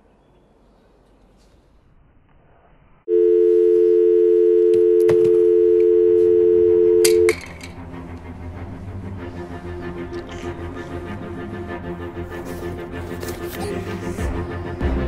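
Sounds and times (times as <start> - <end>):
telephone dial tone: 3.1 - 7.4.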